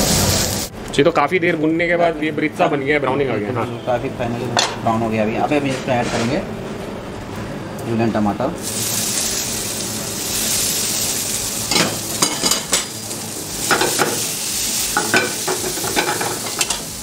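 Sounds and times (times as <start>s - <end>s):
food sizzling in oil: 0.0s - 0.7s, 8.6s - 17.0s.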